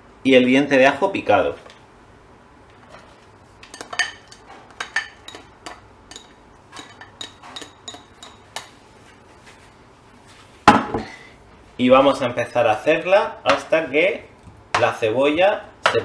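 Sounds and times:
spatula clinking ceramic bowl: 3.6 - 8.8.

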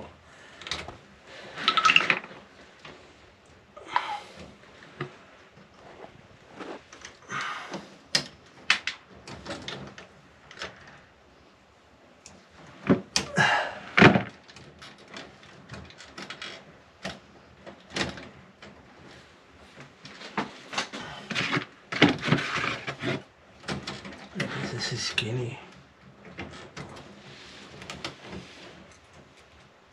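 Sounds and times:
tools and wires clicking and knocking: 0.6 - 3.0, 8.1 - 11.0, 12.2 - 18.8, 19.8 - 24.6.

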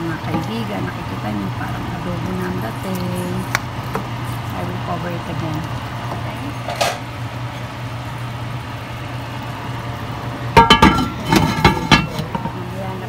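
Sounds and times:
steady low hum: 0.0 - 13.0
pot lid clanking: 10.6 - 12.7.

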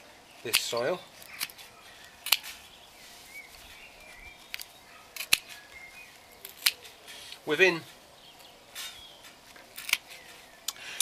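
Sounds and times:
secateurs snipping: 0.4 - 2.7, 4.5 - 5.7.

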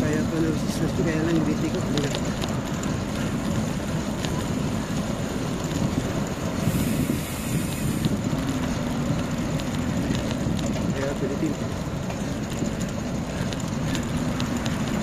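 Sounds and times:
rumbling road noise: 0.0 - 15.0
wind over microphone: 0.0 - 15.0
high hiss: 6.6 - 8.1.

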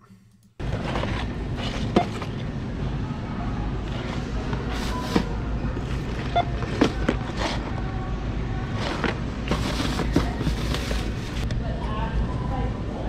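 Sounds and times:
low store hum: 0.0 - 13.0
cardboard boxes knocking and rustling: 4.6 - 7.7, 8.8 - 11.4.

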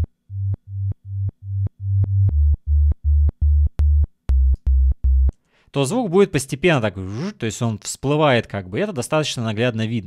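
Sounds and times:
synth bass notes: 0.0 - 5.4.

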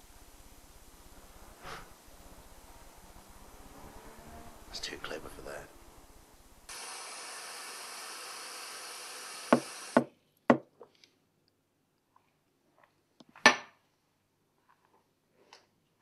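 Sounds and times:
steady hiss: 0.0 - 10.1.

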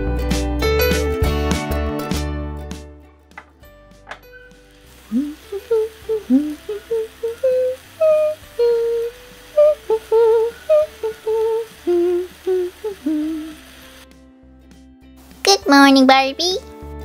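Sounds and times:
person humming a cheerful tune: 5.0 - 14.0.

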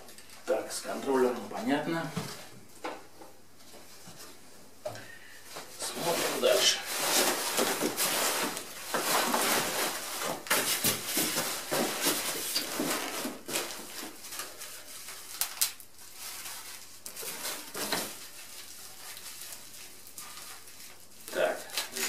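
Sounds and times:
plastic and bubble wrap crinkling: 5.3 - 22.0.

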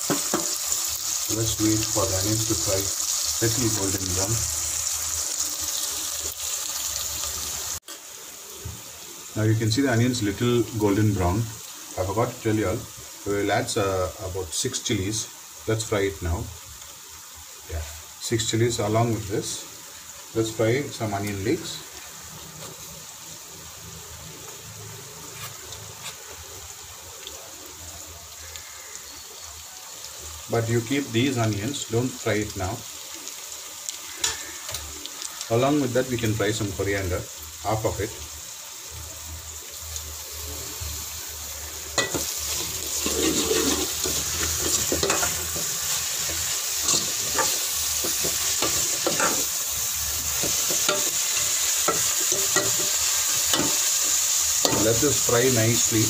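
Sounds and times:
vegetables sizzling in oil: 0.0 - 56.0
faint oil crackles: 21.2 - 56.0
metal spoon scraping pot: 42.0 - 45.7.

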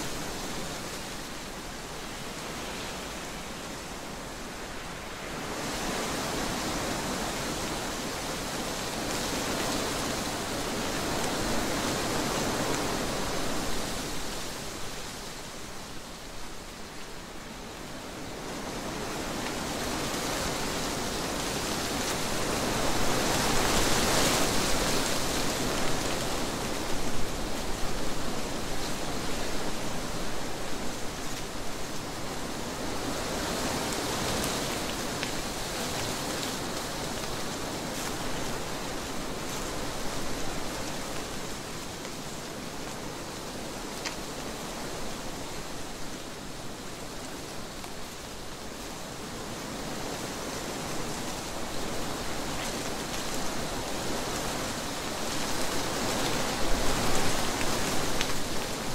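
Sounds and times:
wind rushing through trees: 0.0 - 58.9.

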